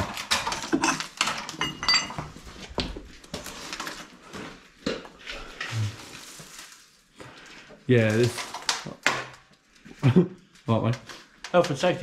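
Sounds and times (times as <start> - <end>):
metal debris clattering: 0.0 - 2.4.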